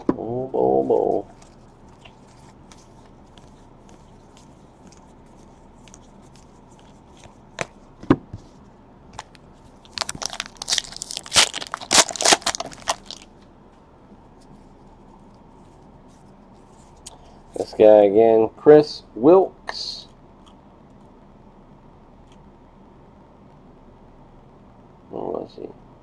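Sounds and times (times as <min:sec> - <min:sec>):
cards being handled: 0:00.8 - 0:07.8, 0:09.2 - 0:13.3
card pack wrapper tearing and crinkling: 0:09.9 - 0:13.3.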